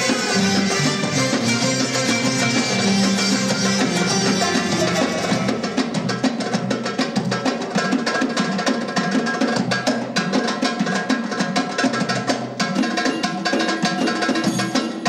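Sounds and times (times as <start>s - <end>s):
keyboard and violin melody: 0.0s - 6.1s
hand drums fast rhythm: 0.0s - 15.0s.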